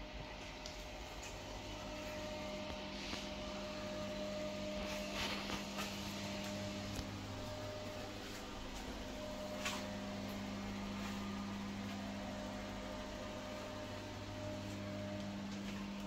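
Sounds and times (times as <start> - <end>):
low electrical hum: 0.0 - 16.0.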